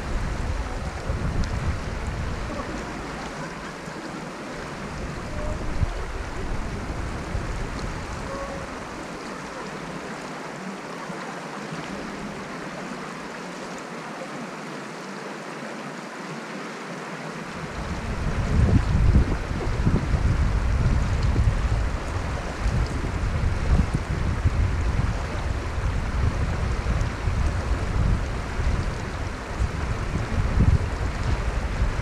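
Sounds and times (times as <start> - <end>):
wind buffeting microphone: 0.0 - 10.0, 17.5 - 32.0
stream rushing over stones: 0.0 - 32.0.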